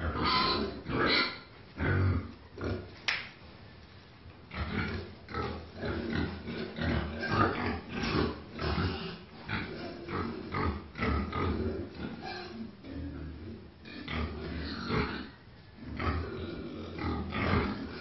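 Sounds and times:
pig grunting: 4.5 - 18.0.

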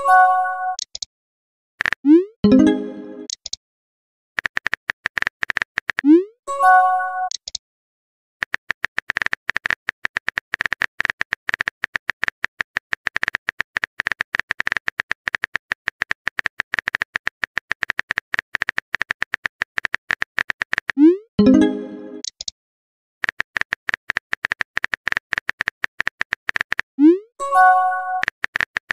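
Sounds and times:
keyboard typing clicks: 0.7 - 1.1, 1.8 - 3.6, 4.4 - 6.2, 7.2 - 7.6, 8.4 - 22.5, 23.2 - 26.9.

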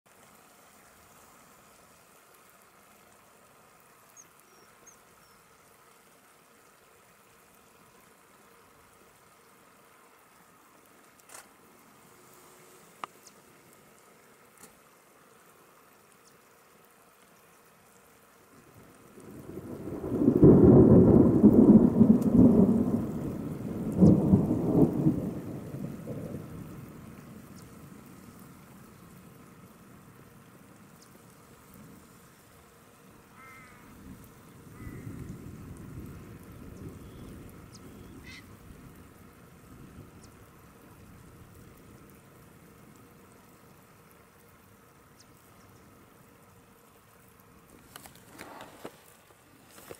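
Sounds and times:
light rain on water: 0.0 - 49.9
thunder rumbling: 18.8 - 29.0, 33.9 - 43.0.

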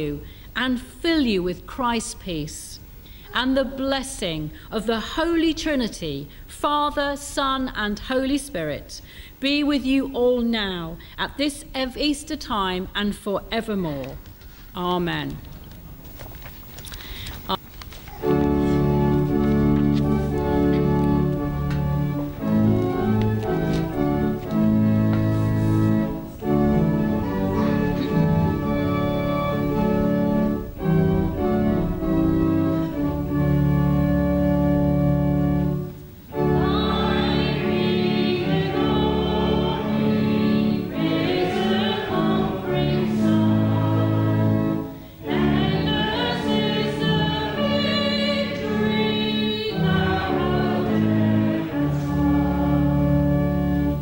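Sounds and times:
organ playing chords: 18.1 - 54.0
voices singing: 36.4 - 53.0.

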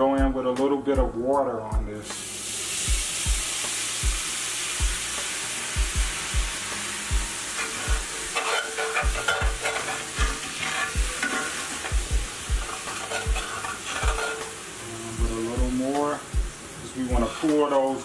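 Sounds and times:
water sizzling in a hot pan: 2.0 - 18.0
metal spoon scraping a skillet: 7.5 - 12.0, 12.6 - 14.8, 17.2 - 18.0.

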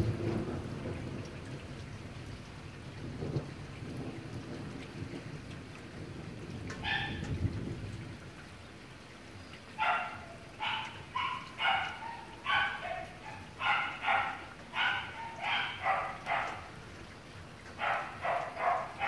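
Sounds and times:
dog barking: 6.8 - 7.2, 9.8 - 16.8, 17.8 - 19.0.

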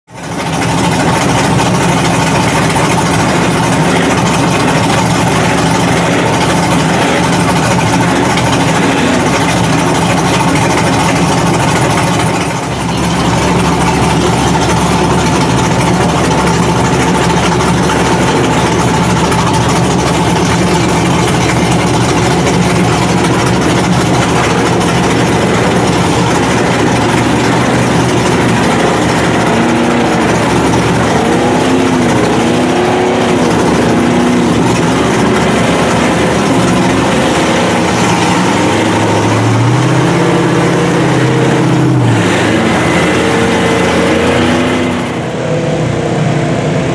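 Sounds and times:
engine revving: 0.0 - 46.9
truck engines running: 0.0 - 46.9.

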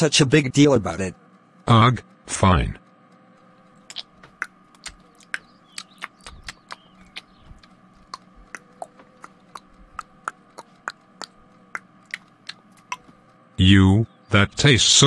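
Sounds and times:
chewing clicks: 3.8 - 13.2.

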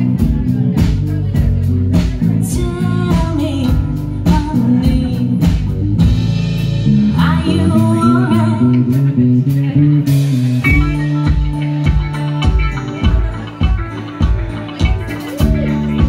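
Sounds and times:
live rock band playing: 0.0 - 16.0
woman singing: 1.9 - 5.7, 7.1 - 9.2.

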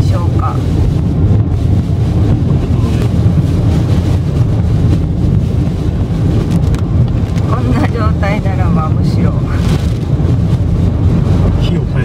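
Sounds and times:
rain on car: 0.0 - 12.0
tyre noise on wet road: 0.0 - 12.0.

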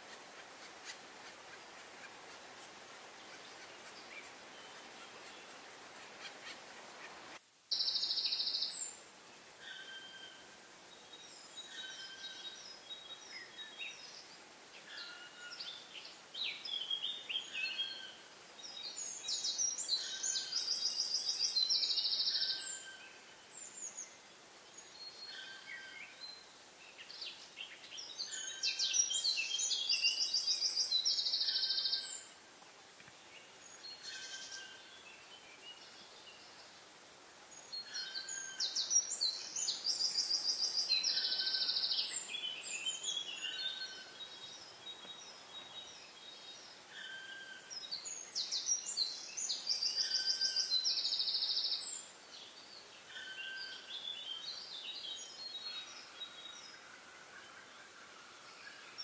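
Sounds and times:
songbird singing with trill: 7.7 - 9.0, 9.6 - 32.3, 33.3 - 36.8, 37.5 - 57.8.

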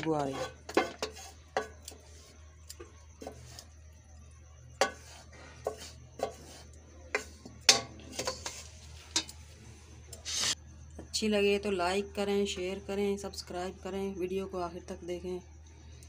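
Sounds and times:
spoon scraping a cooking pot: 0.0 - 3.8, 4.7 - 9.4.

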